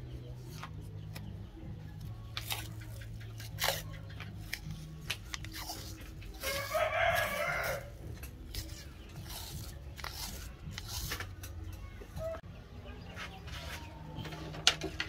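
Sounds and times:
rooster crowing: 0:06.4 - 0:08.0
masking tape pulled off roll: 0:08.5 - 0:11.5.

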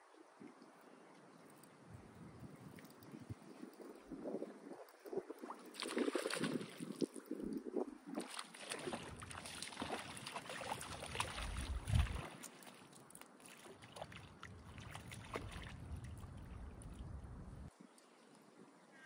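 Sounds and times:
river water splashing and lapping: 0:00.0 - 0:18.9
wind buffeting microphone: 0:01.9 - 0:12.4, 0:14.5 - 0:18.0.

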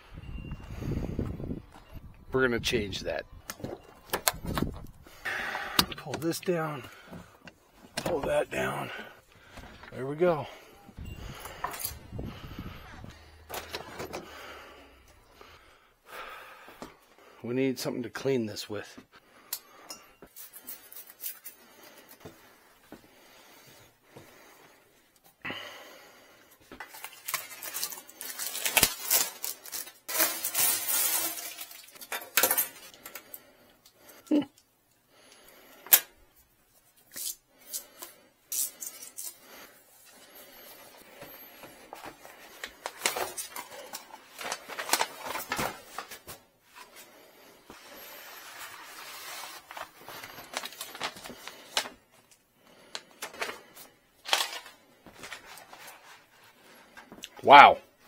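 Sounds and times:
plastic wrap crinkling: 0:26.8 - 0:32.1, 0:42.0 - 0:46.4, 0:48.4 - 0:52.3
vinyl sheet unrolling: 0:26.9 - 0:32.0, 0:41.2 - 0:47.1, 0:47.7 - 0:52.0, 0:53.1 - 0:57.0.

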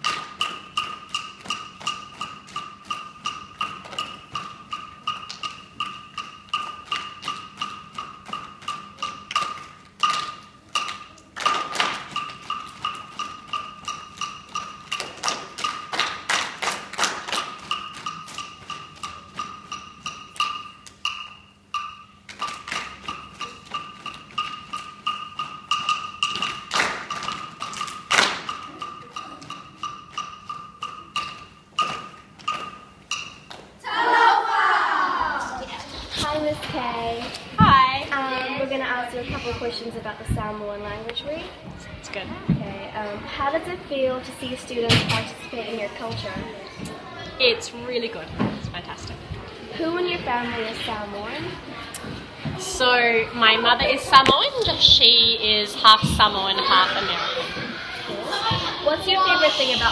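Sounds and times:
wooden percussion beat: 0:00.0 - 0:59.9.

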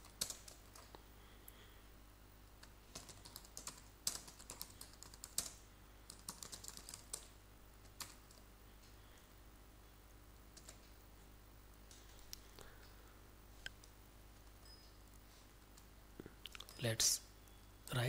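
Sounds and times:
keyboard typing: 0:00.0 - 0:01.0, 0:02.5 - 0:08.4, 0:10.5 - 0:11.0.

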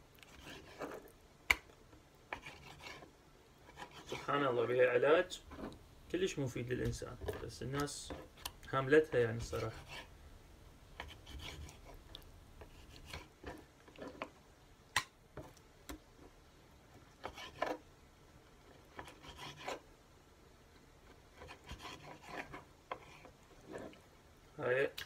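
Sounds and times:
knife scraping on cutting board: 0:00.2 - 0:01.1, 0:02.3 - 0:04.3, 0:05.4 - 0:05.8, 0:09.4 - 0:10.1, 0:11.0 - 0:12.0, 0:12.6 - 0:14.3, 0:17.2 - 0:17.8, 0:18.9 - 0:19.8, 0:21.3 - 0:24.0.

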